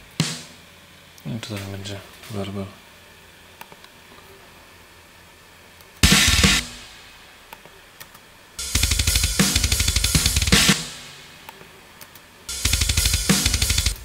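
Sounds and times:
drum kit beat: 0:00.0 - 0:00.6, 0:06.0 - 0:07.2, 0:08.6 - 0:11.4, 0:12.5 - 0:14.0.

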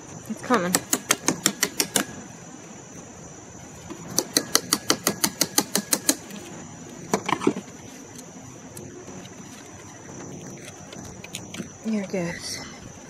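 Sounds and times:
tool tapping on metal: 0:00.7 - 0:02.1, 0:04.1 - 0:06.3.

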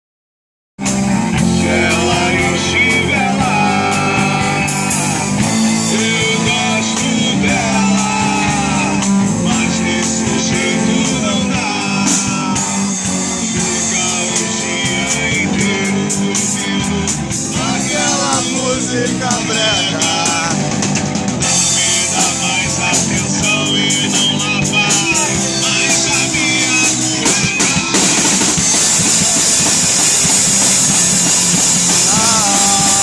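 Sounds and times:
punk band playing live: 0:00.8 - 0:33.0
person singing: 0:01.4 - 0:29.0, 0:29.6 - 0:33.0.

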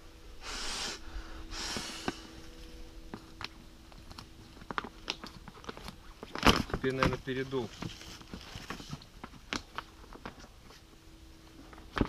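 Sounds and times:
forceful breaths blown into bag: 0:00.4 - 0:02.4.

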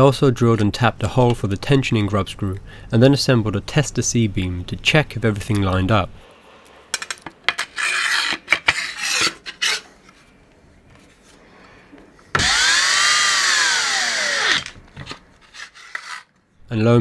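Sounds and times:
clicks and scraping of parts: 0:06.9 - 0:10.3, 0:14.6 - 0:16.5
cordless drill driving screw: 0:12.4 - 0:14.8.

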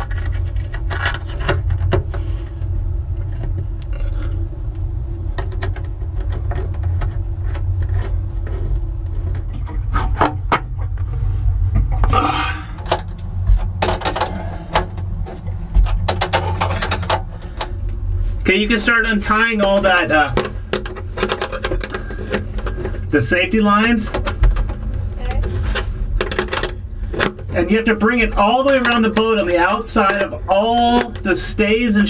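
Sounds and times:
small metal clicks and scrapes: 0:00.0 - 0:02.5
low rumble: 0:00.0 - 0:32.0.

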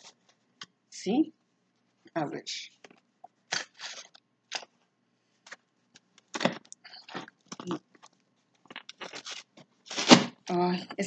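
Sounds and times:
cardboard box tearing open: 0:09.1 - 0:10.3.

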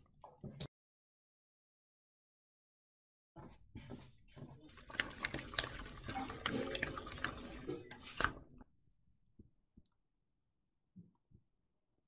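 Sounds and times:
chopsticks stirring wet vegetables: 0:03.8 - 0:08.6.

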